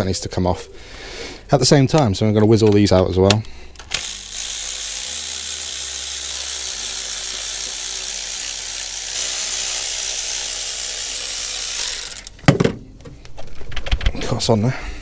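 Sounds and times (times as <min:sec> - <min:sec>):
power ratchet motor whirring: 0:03.8 - 0:12.4.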